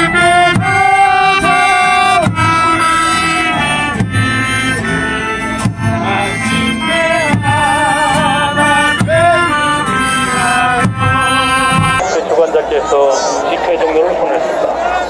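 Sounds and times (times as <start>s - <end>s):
group of people singing: 0.0s - 3.7s
instrumental accompaniment: 0.0s - 12.2s.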